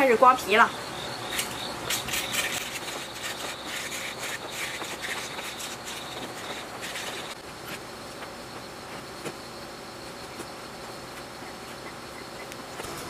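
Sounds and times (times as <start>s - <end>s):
insects chirping: 0.0s - 13.0s
blade scraping wire: 1.2s - 7.4s.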